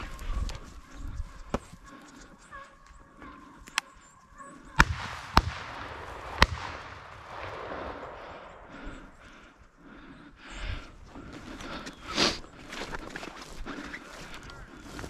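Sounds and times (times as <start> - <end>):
gunshots with rolling echo: 4.8 - 9.6.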